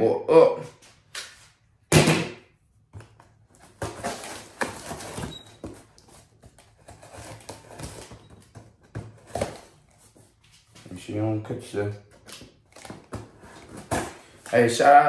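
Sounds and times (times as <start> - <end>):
knife scraping cardboard box: 6.7 - 8.1.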